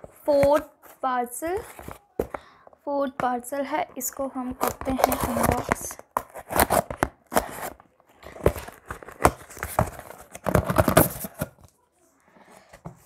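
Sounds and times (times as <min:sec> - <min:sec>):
cardboard and plastic ripping: 0:04.6 - 0:11.7.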